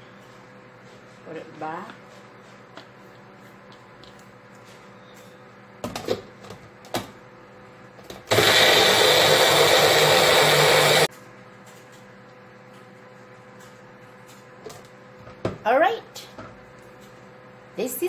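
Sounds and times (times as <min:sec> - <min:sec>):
blender motor running: 0:08.3 - 0:11.1.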